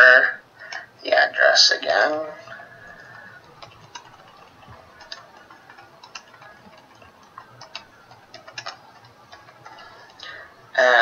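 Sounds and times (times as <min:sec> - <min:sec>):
computer keyboard key clicks: 0:02.8 - 0:10.2.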